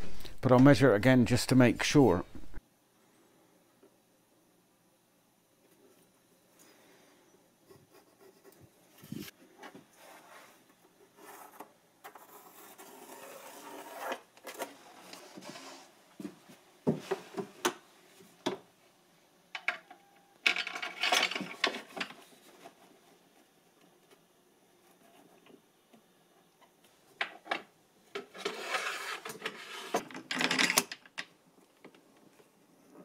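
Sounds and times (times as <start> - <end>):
metal scraping on wood: 28.2 - 30.1.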